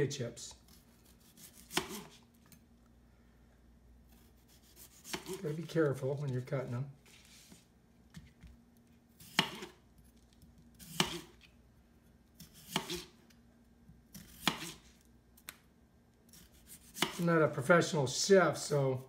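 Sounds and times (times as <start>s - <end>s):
knife slicing onto cutting board: 0.7s - 2.2s, 4.1s - 5.7s, 9.2s - 9.8s, 10.8s - 11.5s, 12.4s - 13.2s, 14.2s - 14.9s, 16.3s - 17.2s.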